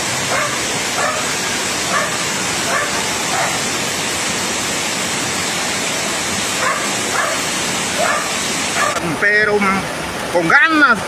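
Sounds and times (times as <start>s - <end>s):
rushing floodwater: 0.0s - 11.0s
dog barking: 0.3s - 1.3s, 1.9s - 3.7s, 6.6s - 9.0s.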